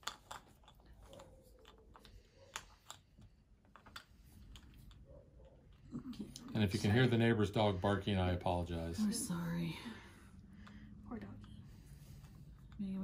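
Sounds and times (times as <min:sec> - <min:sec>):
game pieces clicking on board: 0:00.0 - 0:06.6
faint distant dog barking: 0:05.0 - 0:05.8.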